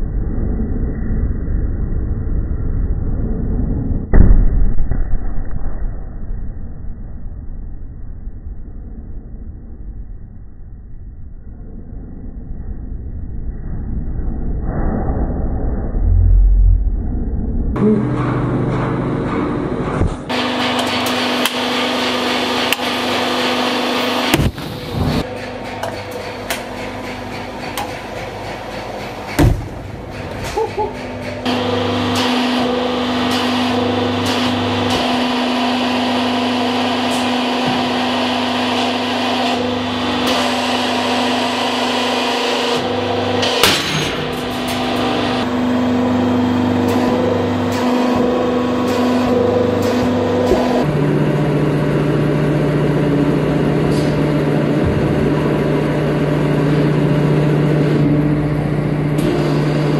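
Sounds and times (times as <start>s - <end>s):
hydraulic pump motor hum: 17.7s - 59.9s.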